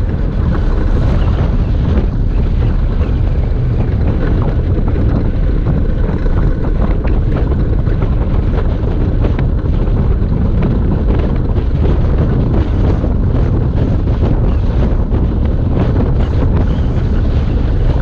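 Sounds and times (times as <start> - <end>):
gravity car rolling rumble: 0.0 - 18.0
wind buffeting microphone: 0.0 - 18.0.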